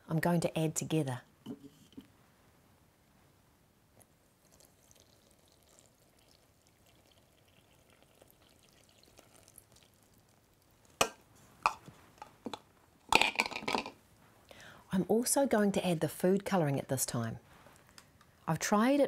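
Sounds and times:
liquid trickling pour: 4.4s - 11.0s
containers knocking down: 13.1s - 14.0s.

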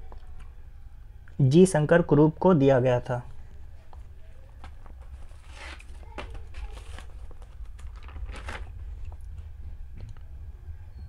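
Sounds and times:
low steady hum: 0.0s - 11.0s
soft rustles: 3.8s - 9.8s.

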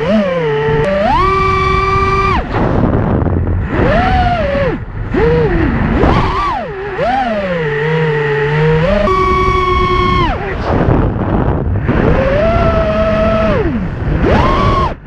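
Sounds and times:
drone motors whining: 0.0s - 15.0s
rush of air: 1.5s - 7.5s, 9.3s - 15.0s.

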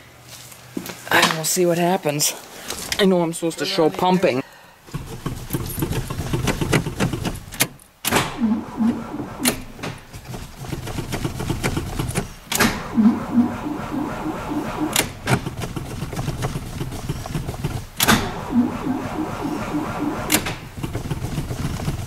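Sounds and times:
car engine cranking: 4.9s - 22.0s.

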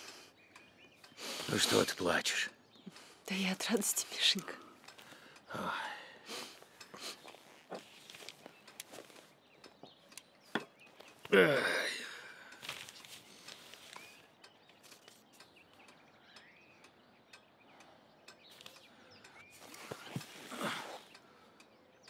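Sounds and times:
faint breathing: 3.9s - 7.6s, 11.5s - 14.2s
soft clicks: 6.7s - 11.3s, 12.5s - 20.4s.

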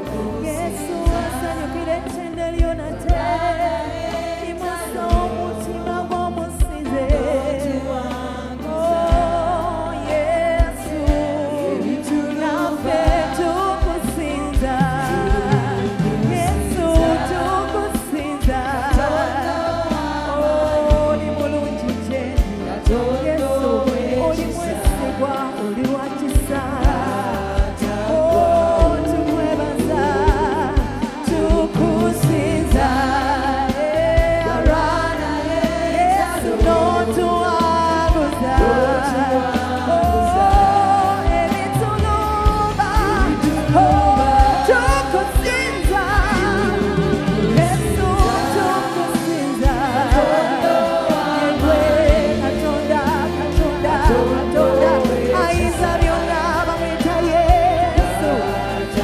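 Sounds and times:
choir singing: 0.0s - 59.0s
steady drum beat: 0.0s - 59.0s
woman singing lead: 0.0s - 59.0s.

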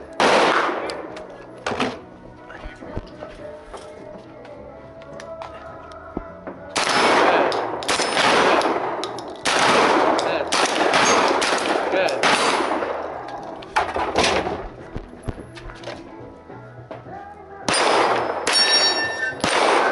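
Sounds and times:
gunshots with long echo: 0.0s - 1.2s, 6.7s - 14.6s, 17.7s - 19.9s.

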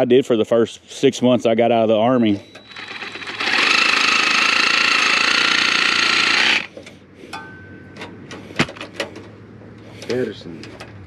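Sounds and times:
power tool whining: 2.4s - 6.8s.

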